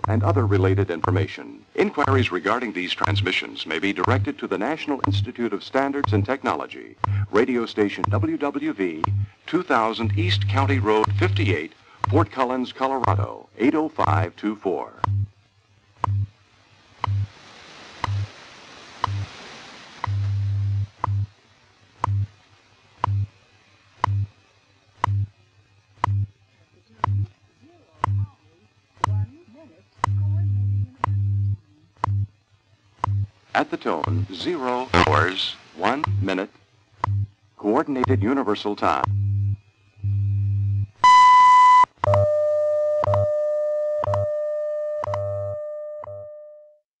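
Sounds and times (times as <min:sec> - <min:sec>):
sharp time signal ticks: 0:00.0 - 0:15.4, 0:16.0 - 0:16.4, 0:17.0 - 0:17.3, 0:18.0 - 0:18.3, 0:19.0 - 0:19.3, 0:20.0 - 0:21.3, 0:22.0 - 0:22.3, 0:23.0 - 0:23.4, 0:24.0 - 0:26.4, 0:27.0 - 0:27.4, 0:28.0 - 0:28.4, 0:29.0 - 0:46.3
steady low tone: 0:00.0 - 0:16.4, 0:17.0 - 0:17.3, 0:20.0 - 0:21.3, 0:24.0 - 0:46.8
low time-code hum: 0:00.0 - 0:17.4, 0:18.0 - 0:46.8
faint radio static: 0:00.0 - 0:21.6, 0:22.3 - 0:41.6
high beep: 0:41.0 - 0:46.6.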